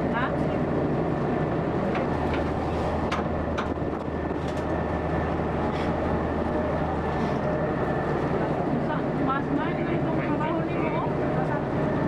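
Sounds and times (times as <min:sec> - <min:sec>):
constant rushing noise: 0:00.0 - 0:12.0
faint steady whine: 0:00.0 - 0:12.0
ferry engine humming: 0:00.0 - 0:12.0.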